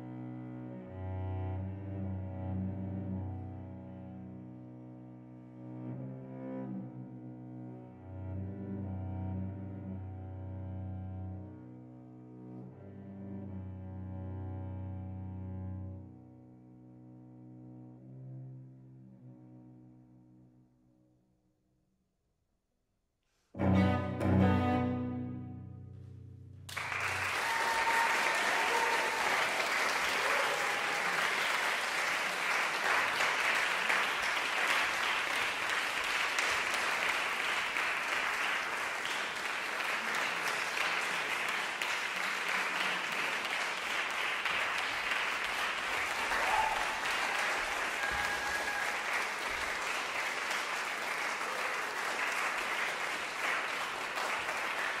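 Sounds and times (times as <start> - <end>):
audience applauding: 26.7 - 55.0.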